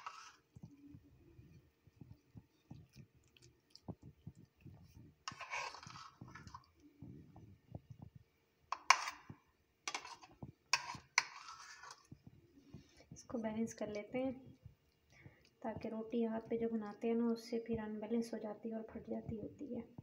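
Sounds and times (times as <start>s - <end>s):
spoon scraping plate: 0.0s - 0.7s, 4.4s - 6.8s, 8.7s - 12.9s
spoon dabbing filling on dough: 0.0s - 13.2s.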